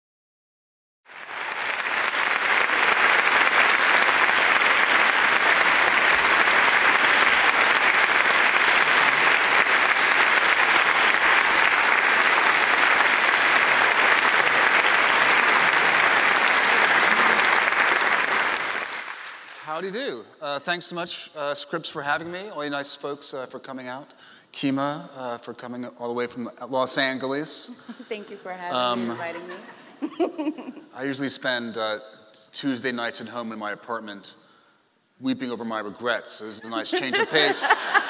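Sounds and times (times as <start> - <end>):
audience applauding: 1.1 - 19.9, 36.7 - 38.0.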